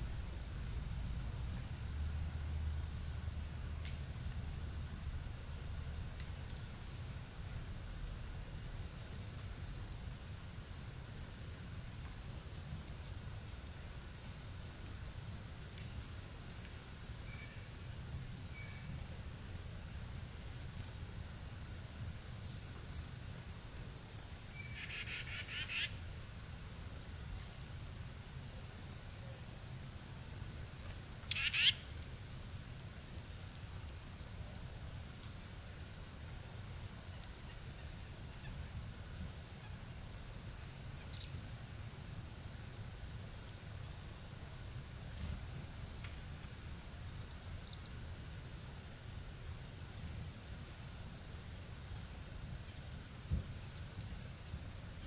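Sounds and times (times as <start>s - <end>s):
steady low rumble: 0.0s - 10.2s
songbirds short high calls: 24.2s - 26.0s, 31.2s - 31.9s, 40.6s - 41.5s, 47.6s - 48.0s.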